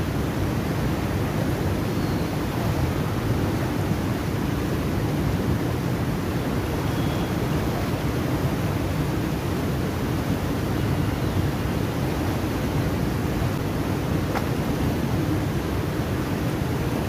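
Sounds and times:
water rushing through sluice gates: 0.0 - 17.0.

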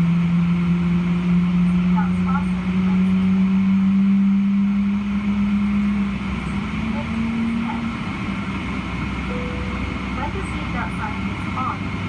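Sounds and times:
aircraft cabin hum: 6.8 - 12.0.

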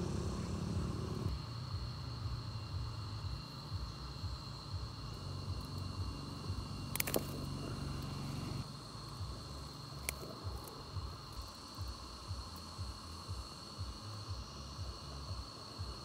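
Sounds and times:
insects trilling: 0.0 - 16.0
low hum: 0.0 - 16.0
sharp clicks: 6.9 - 7.4.

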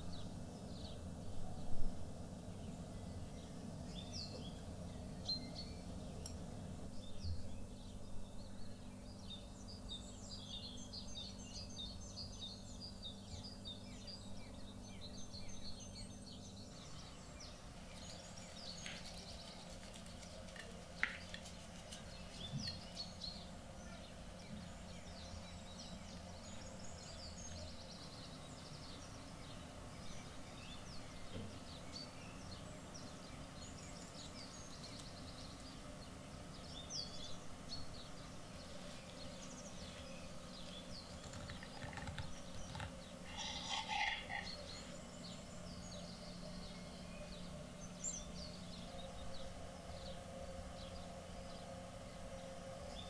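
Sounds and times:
low steady hum: 0.0 - 53.0
small birds chirping: 0.0 - 53.0.

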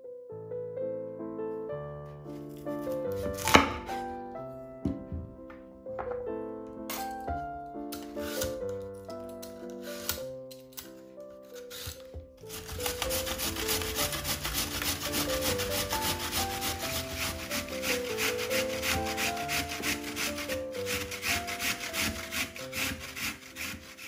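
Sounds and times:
soft piano melody: 0.0 - 24.0
vegetable grated on metal grater: 11.6 - 24.0.

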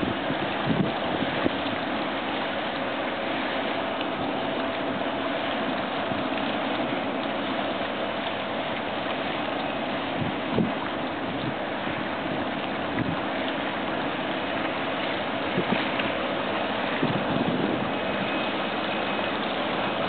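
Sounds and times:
wind bumping microphone: 0.0 - 1.6, 17.0 - 18.0
large ship passing: 0.0 - 20.0.

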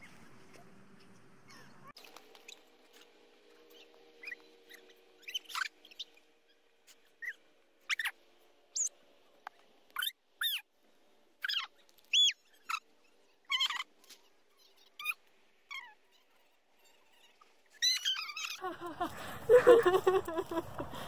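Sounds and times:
high-pitched squeaky chirps: 3.7 - 8.2, 10.0 - 10.7, 11.4 - 18.6.

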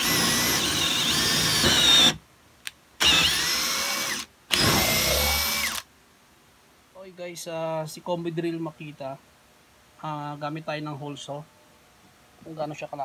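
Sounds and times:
drill boring into wood: 0.0 - 2.2, 3.0 - 5.9.

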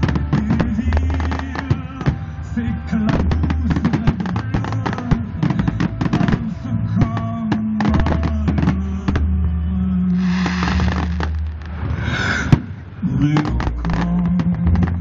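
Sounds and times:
fireworks bangs and crackles: 0.0 - 9.4, 10.2 - 15.0
music with held notes: 0.0 - 11.8.

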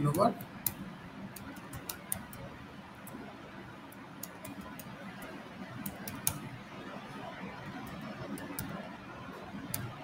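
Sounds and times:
computer keyboard keys clicking: 0.0 - 3.2, 4.2 - 6.5.

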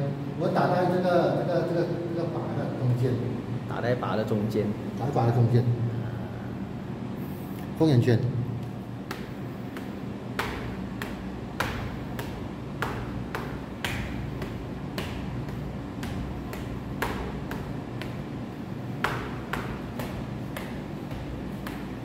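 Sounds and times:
knuckles striking rubber pads: 8.6 - 22.0.

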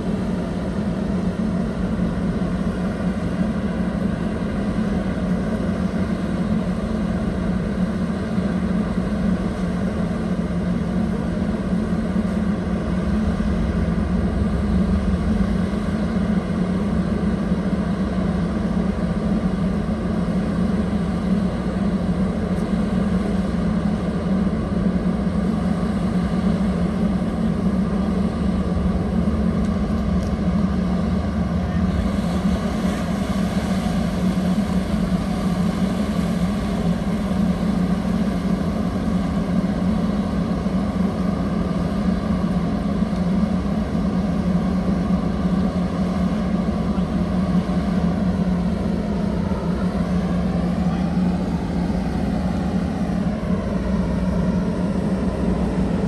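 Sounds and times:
boat engines droning: 0.0 - 56.0
churned water rushing hiss: 21.3 - 45.0.

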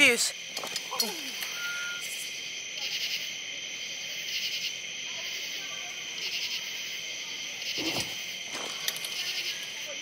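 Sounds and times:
night insects trilling: 0.0 - 10.0.

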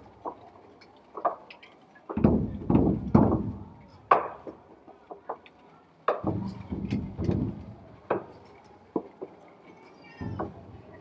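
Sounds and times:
sharp wooden knocks: 2.1 - 5.4, 6.1 - 8.4
low thuds: 6.2 - 7.9.

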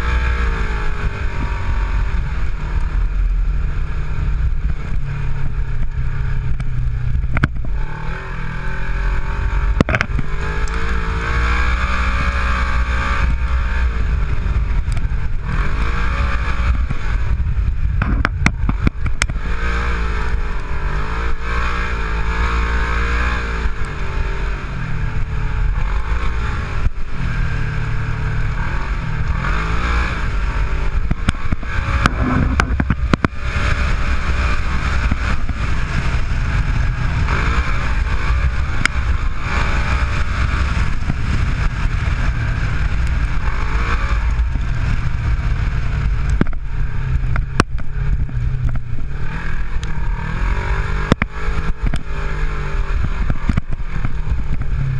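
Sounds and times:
steady rushing noise: 0.0 - 54.9
vehicle engine revving: 0.0 - 54.9
knocks from rough ground: 17.9 - 19.4, 31.1 - 33.4.

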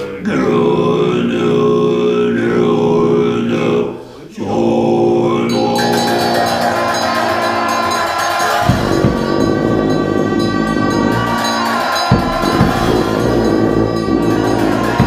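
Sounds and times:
monks chanting in low voices: 0.0 - 15.0
clashing cymbals: 5.5 - 15.0
shrill horns: 5.5 - 15.0
deep horn drone: 8.6 - 15.0.

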